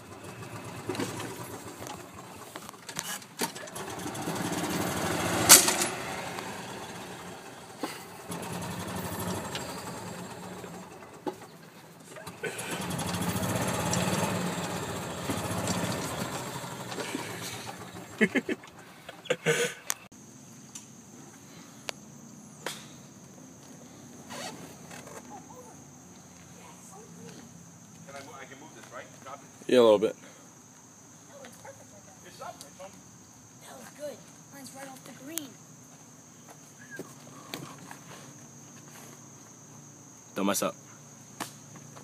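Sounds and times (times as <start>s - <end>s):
golf cart engine hum: 0.0s - 20.1s, 36.8s - 42.0s.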